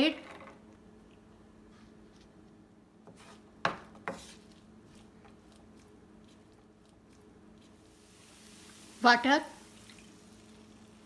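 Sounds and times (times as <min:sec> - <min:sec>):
faint steady hum: 0:00.0 - 0:11.0
stirring scrapes and ticks: 0:04.1 - 0:08.0.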